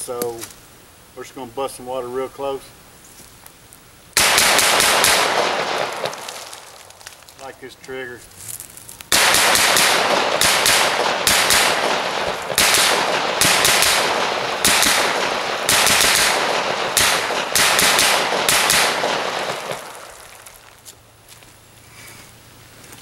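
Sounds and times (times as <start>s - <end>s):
pistol shots: 4.2s - 6.7s, 9.1s - 20.5s.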